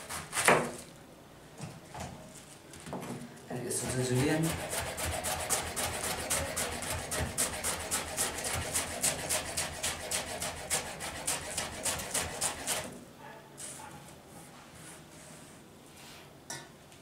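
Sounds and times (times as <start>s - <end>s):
knife chopping on a cutting board: 3.8s - 12.9s.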